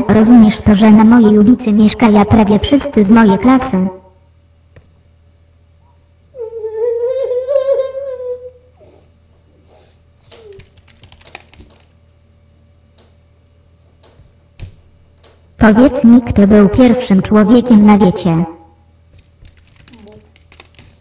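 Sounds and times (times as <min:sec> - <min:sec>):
person whining high-pitched: 0:06.3 - 0:10.8
computer keyboard typing: 0:10.3 - 0:12.0, 0:19.0 - 0:21.0.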